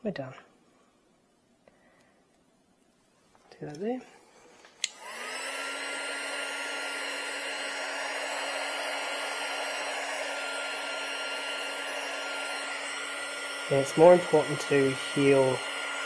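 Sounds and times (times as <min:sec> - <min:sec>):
heat gun fan blowing: 0:04.6 - 0:16.0.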